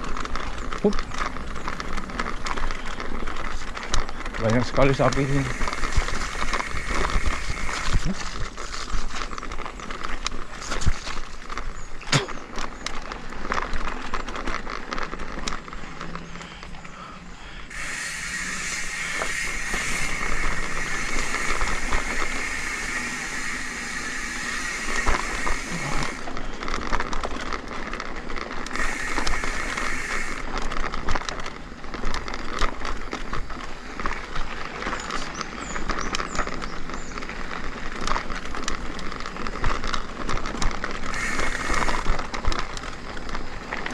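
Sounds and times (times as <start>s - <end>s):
bike frame rattling: 0.0s - 16.8s, 17.7s - 43.9s
tyre noise: 0.0s - 43.9s
steady hiss: 4.9s - 9.0s, 16.5s - 26.3s, 28.7s - 30.6s, 41.0s - 43.8s.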